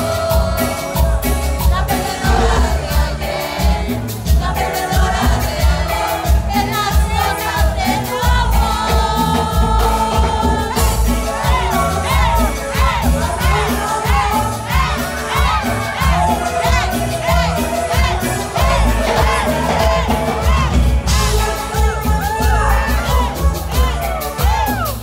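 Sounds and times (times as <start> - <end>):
crowd singing along: 0.0 - 25.0
live band playing: 0.0 - 25.0
person singing: 0.0 - 25.0.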